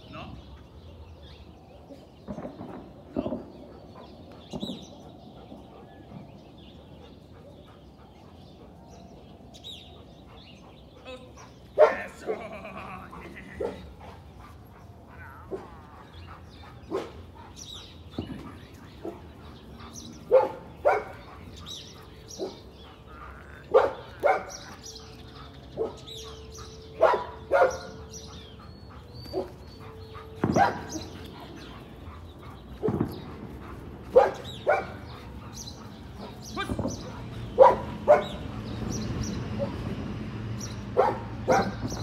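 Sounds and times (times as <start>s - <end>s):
dog barking: 11.4s - 12.4s, 13.6s - 13.9s, 16.8s - 17.9s, 20.0s - 22.7s, 23.7s - 24.9s, 25.7s - 28.4s, 29.3s - 31.9s, 34.1s - 38.5s, 41.0s - 42.0s.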